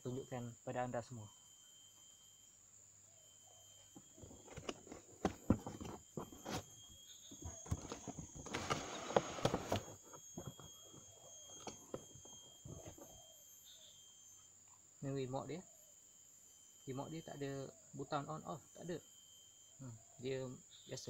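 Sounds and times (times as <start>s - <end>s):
insects chirring: 0.0s - 21.0s
packaging rustling: 7.5s - 10.7s.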